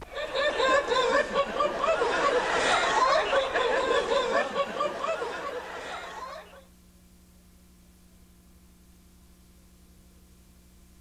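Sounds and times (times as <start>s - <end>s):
audience laughing and chattering: 0.0s - 6.6s
faint steady hum: 0.0s - 11.0s.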